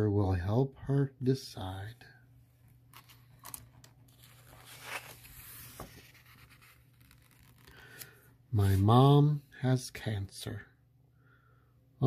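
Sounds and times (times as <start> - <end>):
paper page rustling: 2.9 - 8.8.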